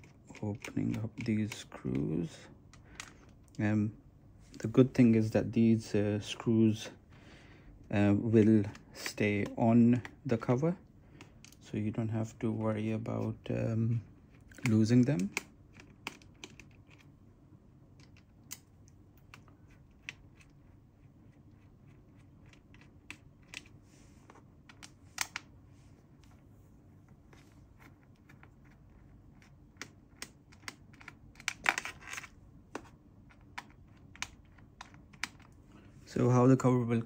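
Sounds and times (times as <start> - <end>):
small screw clicks and taps: 24.7 - 25.5.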